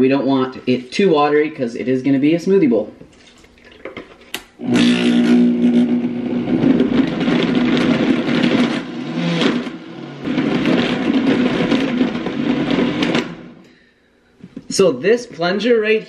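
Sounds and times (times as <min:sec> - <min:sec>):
blender motor running: 0:04.6 - 0:13.6.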